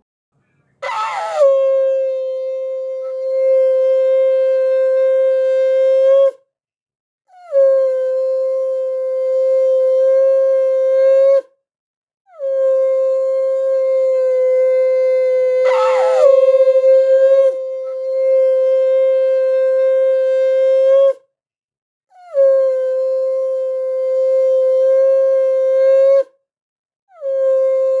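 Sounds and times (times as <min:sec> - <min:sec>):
conch shell blasts: 0:15.4 - 0:18.4
brief wavering note: 0:15.6 - 0:17.6.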